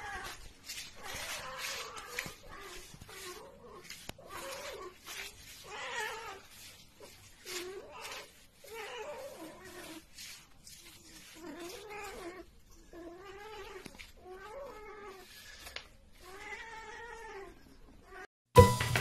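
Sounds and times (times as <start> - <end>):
cat yowling: 0.0 - 10.0
loud music: 18.6 - 19.0.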